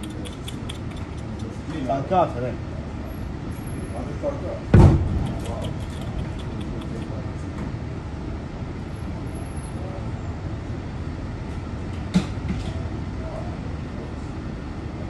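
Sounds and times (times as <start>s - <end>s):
sharp knock: 4.8s - 5.6s.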